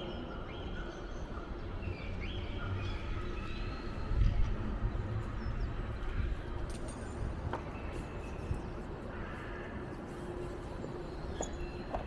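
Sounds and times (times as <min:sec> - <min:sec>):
traffic rumble: 0:00.2 - 0:12.0.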